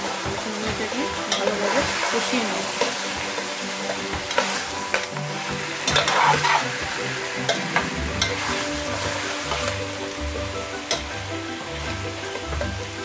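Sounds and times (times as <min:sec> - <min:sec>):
meat sizzling in a pot: 0:00.0 - 0:13.0
metal spoon clinking on pot: 0:01.2 - 0:01.8.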